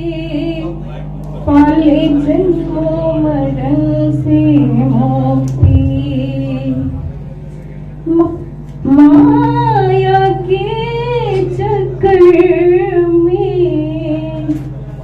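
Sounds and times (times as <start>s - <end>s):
woman singing into microphone: 0.0s - 0.8s, 1.4s - 7.1s, 8.0s - 14.7s
steady low hum: 0.0s - 15.0s.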